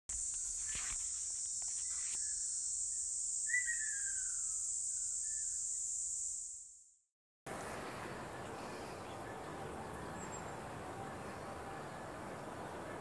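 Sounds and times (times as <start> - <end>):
high-pitched insect chorus: 0.1 - 6.8
bird whistled call: 3.4 - 5.6.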